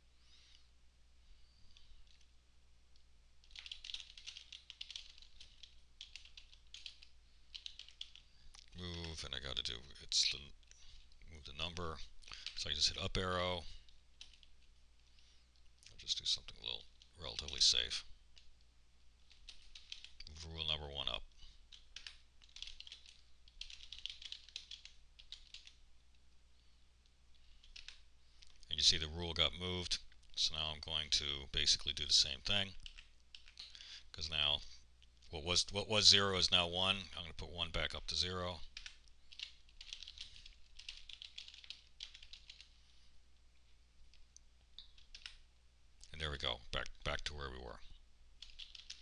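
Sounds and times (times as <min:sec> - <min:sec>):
typing on computer keyboard: 0:03.4 - 0:08.2, 0:14.2 - 0:14.6, 0:19.3 - 0:20.2, 0:21.7 - 0:25.8, 0:27.6 - 0:28.0, 0:32.8 - 0:33.8, 0:38.8 - 0:42.7, 0:44.9 - 0:45.4, 0:48.4 - 0:49.0.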